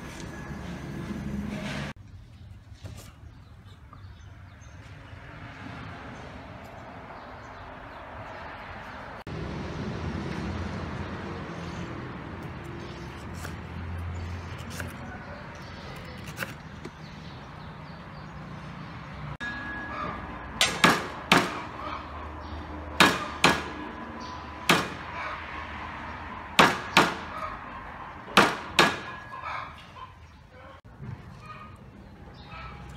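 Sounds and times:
metallic ring of blade: 0:19.4 - 0:20.3.

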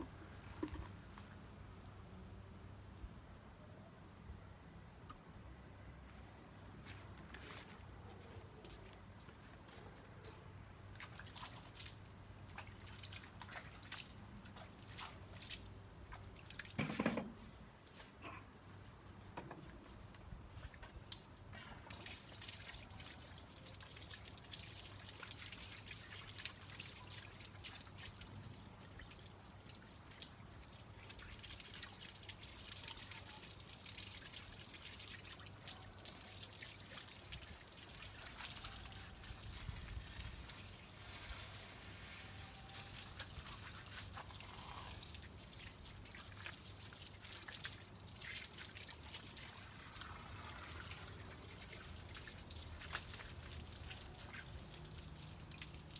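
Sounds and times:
water drips and spatters: 0:10.8 - 0:17.1, 0:20.0 - 0:55.9
water trickling on tiles: 0:20.5 - 0:55.9.

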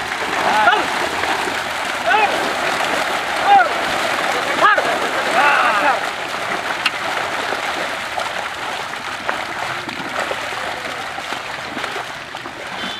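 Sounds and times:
water splashing and churning: 0:00.0 - 0:12.9.

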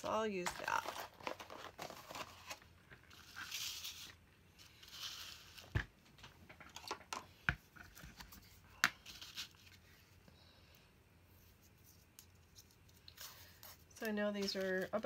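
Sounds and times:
paper and tape rustling: 0:00.0 - 0:05.8, 0:07.8 - 0:10.1, 0:11.4 - 0:15.0.

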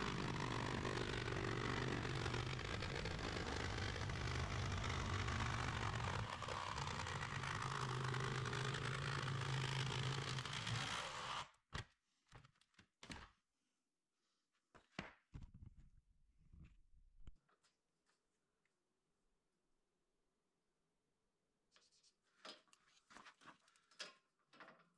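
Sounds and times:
jigsaw cutting sheet metal: 0:00.0 - 0:11.6.

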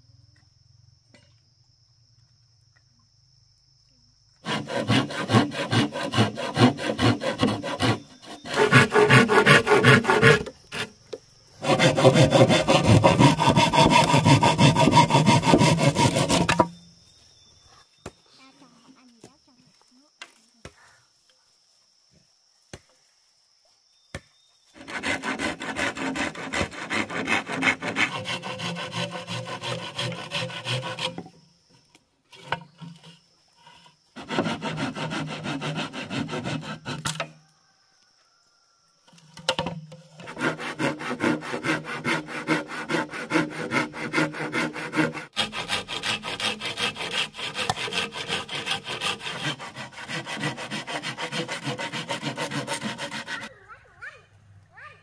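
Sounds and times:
hand saw cutting bamboo: 0:04.4 - 0:11.0, 0:11.6 - 0:16.7, 0:24.8 - 0:31.3, 0:32.3 - 0:37.3, 0:39.5 - 0:53.5.

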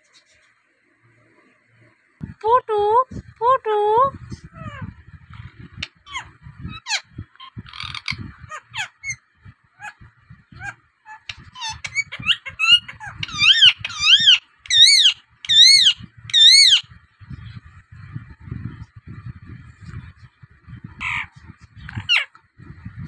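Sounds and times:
parakeet screeching: 0:05.9 - 0:09.2, 0:10.6 - 0:16.9
parakeet chirps and whistles: 0:10.6 - 0:16.9.

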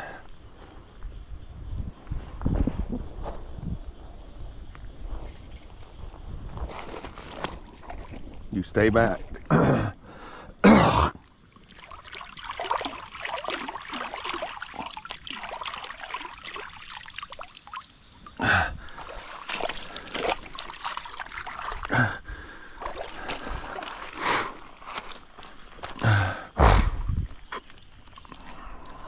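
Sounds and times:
creek water trickling: 0:04.7 - 0:26.1, 0:27.2 - 0:29.0
hands splashing in water: 0:11.6 - 0:17.9, 0:18.9 - 0:22.1, 0:22.7 - 0:26.0.

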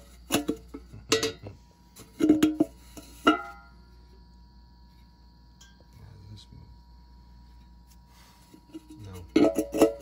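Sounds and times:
metal can clanking on concrete: 0:00.0 - 0:01.4, 0:02.0 - 0:03.6, 0:08.7 - 0:10.0.

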